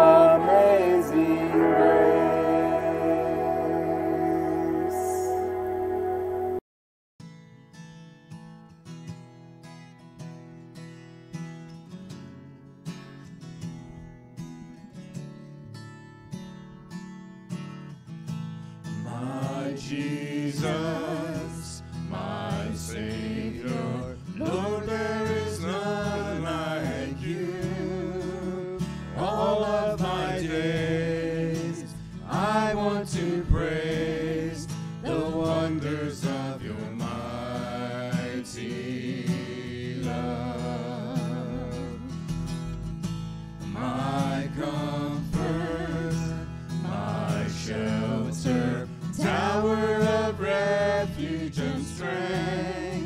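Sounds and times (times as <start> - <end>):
acoustic guitar: 0.0 - 6.6, 7.2 - 53.0
people singing: 0.0 - 6.6, 19.0 - 42.2, 43.7 - 53.0.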